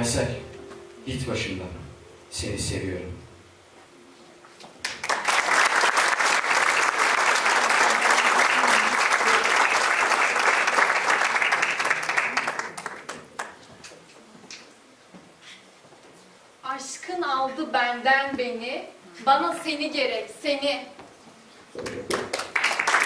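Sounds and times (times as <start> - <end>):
audience applauding: 4.8 - 13.7, 21.8 - 23.0.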